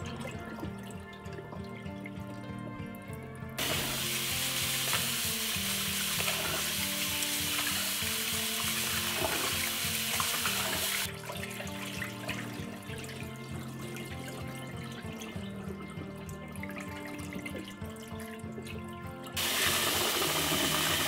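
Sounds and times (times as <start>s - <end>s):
soft background music: 0.0s - 21.0s
tap running into a bowl: 3.6s - 10.9s
water poured into a sink: 3.6s - 21.0s.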